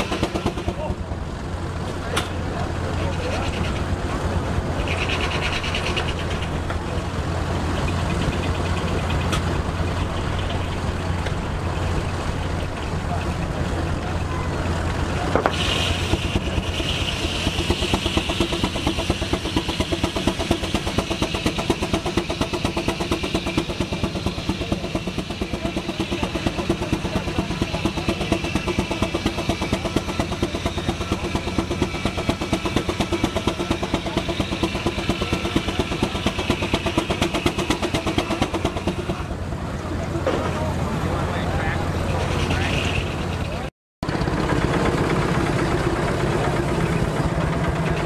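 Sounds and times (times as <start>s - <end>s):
steam engine exhaust beating: 0.0s - 48.0s
circular saw cutting log: 15.3s - 39.3s.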